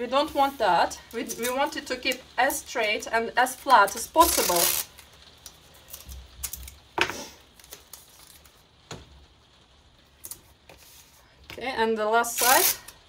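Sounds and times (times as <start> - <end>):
masking tape pulled and pressed: 3.8 - 8.6, 12.3 - 13.0.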